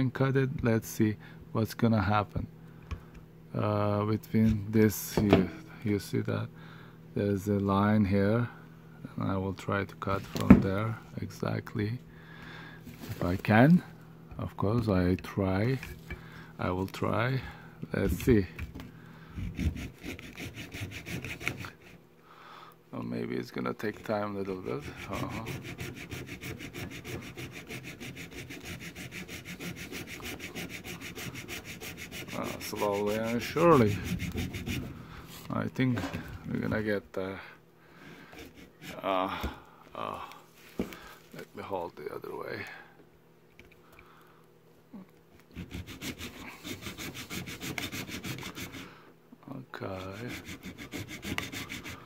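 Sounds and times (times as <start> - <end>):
hand saw cutting plastic: 19.4 - 22.0, 24.0 - 34.9, 45.6 - 48.9, 49.9 - 52.0.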